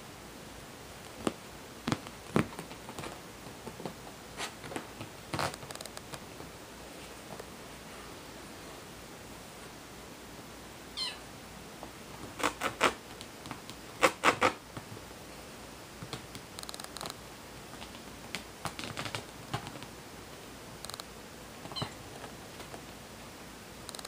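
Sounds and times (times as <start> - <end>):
kitten mewing: 11.0 - 11.3
claws scratching upholstery: 12.2 - 14.6.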